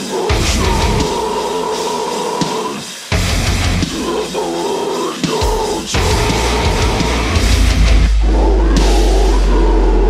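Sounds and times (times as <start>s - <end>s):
distorted electric guitars: 0.0s - 10.0s
heavy metal music: 0.0s - 10.0s.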